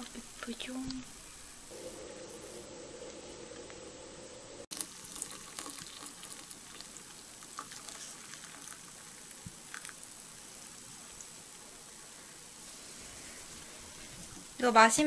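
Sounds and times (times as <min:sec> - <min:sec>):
water pouring into mug: 0:04.7 - 0:10.4
small clicks: 0:04.7 - 0:14.6.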